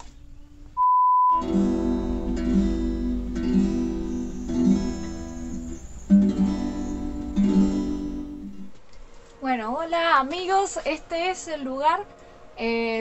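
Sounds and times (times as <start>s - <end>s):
acoustic guitar strumming: 1.3s - 8.8s.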